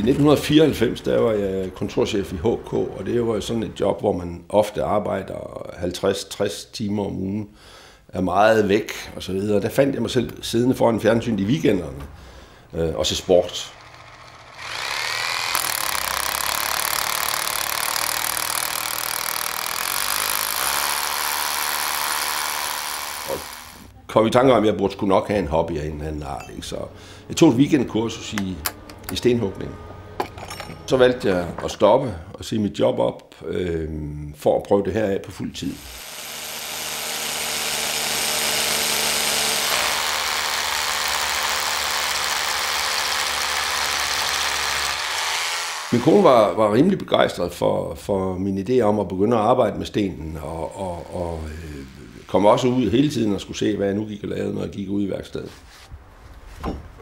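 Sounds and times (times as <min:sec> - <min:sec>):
electric drill boring into stone: 0:13.0 - 0:23.9, 0:35.7 - 0:46.6, 0:50.6 - 0:53.3.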